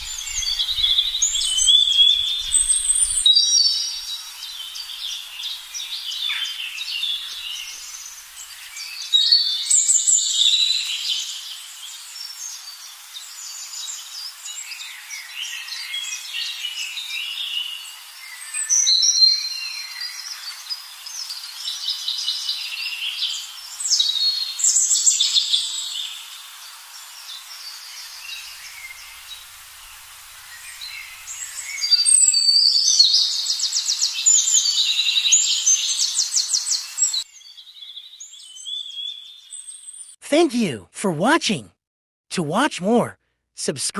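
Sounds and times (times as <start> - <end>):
birds chirping and trilling: 0.0 - 8.9.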